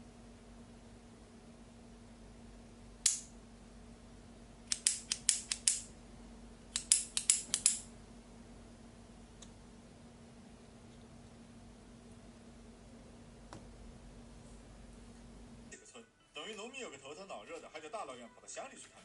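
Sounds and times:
small metal parts clicking: 4.7 - 5.9, 6.7 - 7.9.

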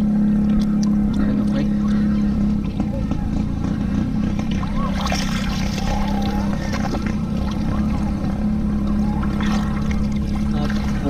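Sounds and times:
river water flowing around legs: 0.0 - 11.0
steady low hum: 0.0 - 11.0.

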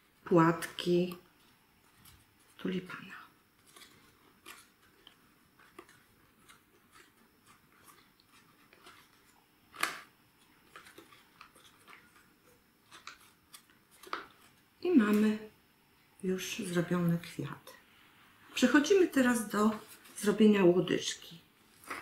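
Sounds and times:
paper rustling and crinkling: 0.7 - 14.7, 19.6 - 20.5, 21.6 - 22.0.

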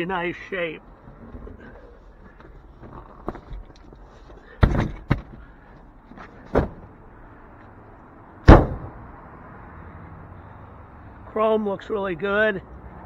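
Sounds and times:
car door slam: 8.4 - 9.0.

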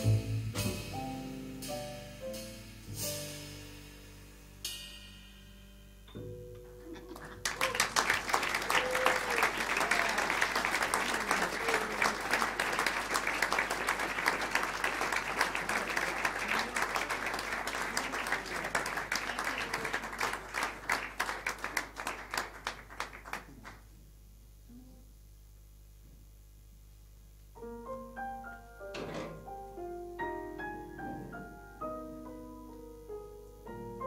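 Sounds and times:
audience applauding: 6.6 - 23.9.

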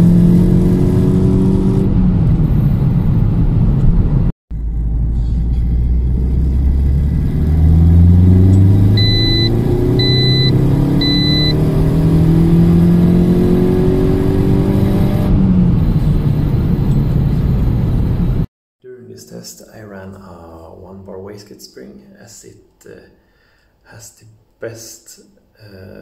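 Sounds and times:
car engine accelerating hard: 0.0 - 18.5
short electronic beeps: 8.9 - 11.7.

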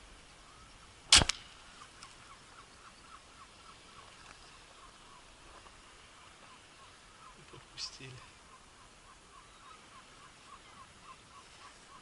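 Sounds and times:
air rifle shot crack: 1.1 - 1.6
fainter crack: 1.1 - 1.6.

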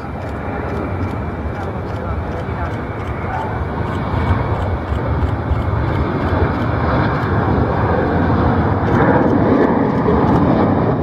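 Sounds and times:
jet airliner roar: 0.0 - 11.0.

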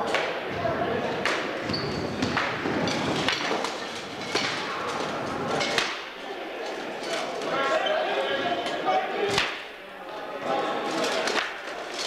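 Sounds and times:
sticks striking shields: 5.6 - 6.1.

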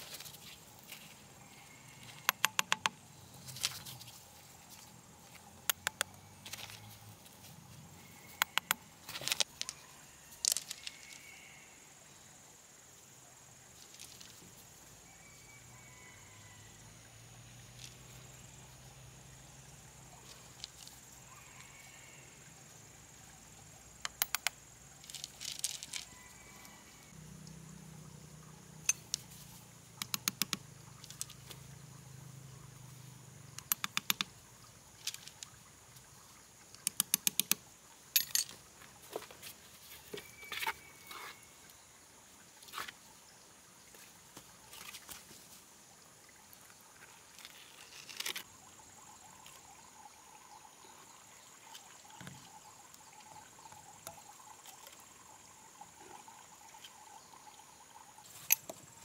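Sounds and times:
insect trill: 0.0 - 4.9, 5.7 - 43.4, 46.2 - 59.0
hammer tapping pebbles: 2.0 - 3.0, 24.0 - 26.0, 30.0 - 31.4, 33.6 - 34.3
stones clinking: 24.0 - 26.2, 36.8 - 38.6.

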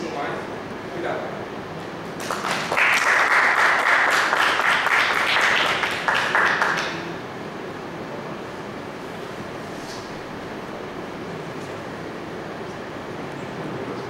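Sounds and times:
room noise: 0.0 - 14.0
audience applauding: 2.1 - 7.1.

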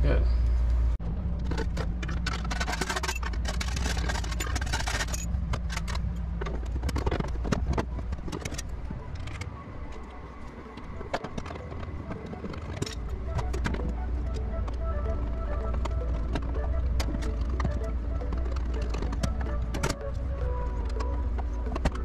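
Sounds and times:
low hum: 0.0 - 22.0
sheet metal clatter and scraping: 1.2 - 9.4.

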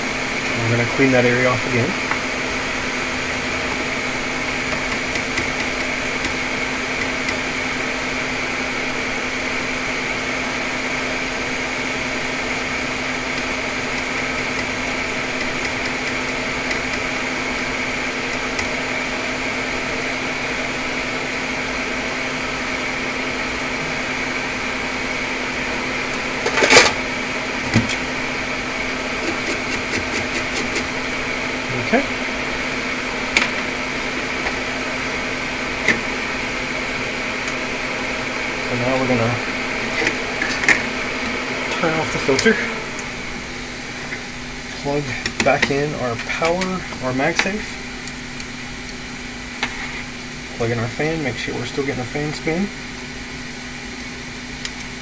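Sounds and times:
fan motor humming: 0.0 - 55.0.

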